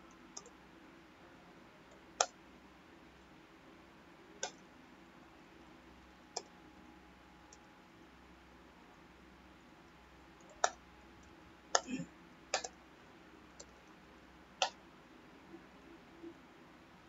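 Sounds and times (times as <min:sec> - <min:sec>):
faint steady hum: 0:00.0 - 0:17.0
mouse and keyboard clicks: 0:01.9 - 0:02.4, 0:04.4 - 0:04.6, 0:10.4 - 0:11.9, 0:12.5 - 0:12.8, 0:14.6 - 0:14.8.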